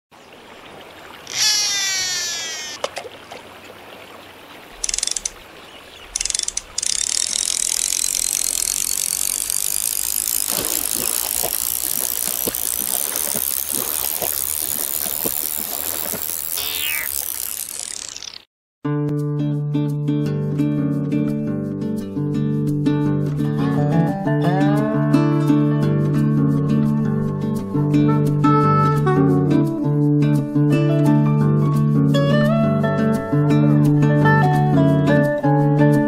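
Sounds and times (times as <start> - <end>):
short noise bursts: 1.3 - 2.8
sharp click: 4.8 - 5.4, 6.2 - 9.8.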